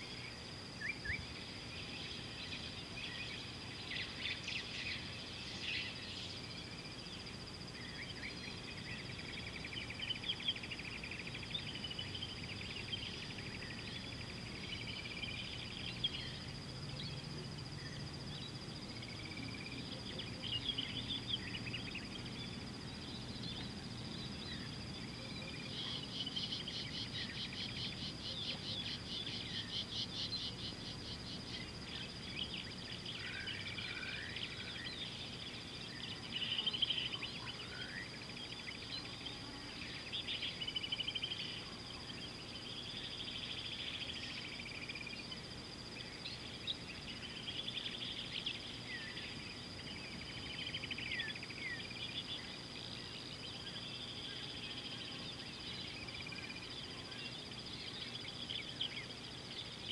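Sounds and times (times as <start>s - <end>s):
birds chirping and trilling: 0.0s - 59.9s.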